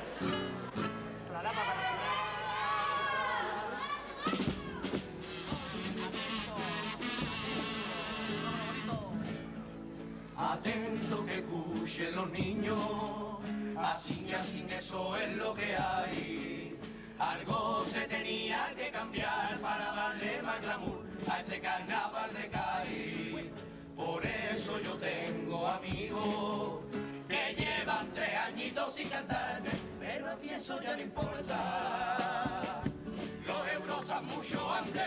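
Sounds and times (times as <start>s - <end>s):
guitars: 0.0s - 35.0s
steady drum beat: 4.2s - 9.3s, 13.9s - 30.2s, 31.2s - 35.0s
group singing in chorus: 10.3s - 35.0s.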